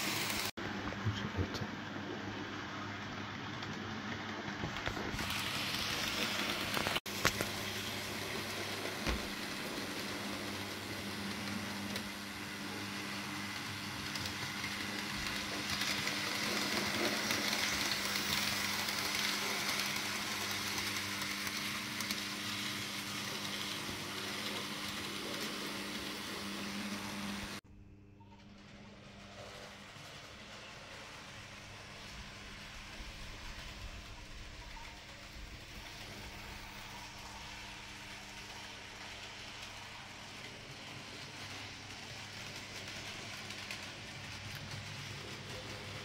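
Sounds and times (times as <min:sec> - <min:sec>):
wheels rolling on rails: 0:03.1 - 0:27.6, 0:28.2 - 0:46.0
model train motor whirring: 0:05.0 - 0:27.6.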